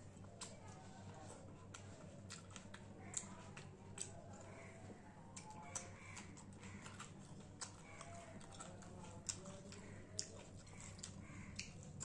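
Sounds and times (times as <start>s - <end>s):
hand squishing food: 0.0s - 12.0s.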